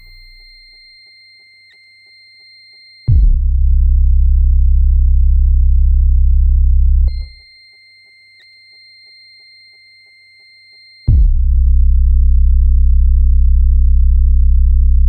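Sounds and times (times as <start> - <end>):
low droning electronic tone: 0.0 - 1.0, 3.1 - 7.4, 11.1 - 15.0
high sine tone: 0.0 - 14.7.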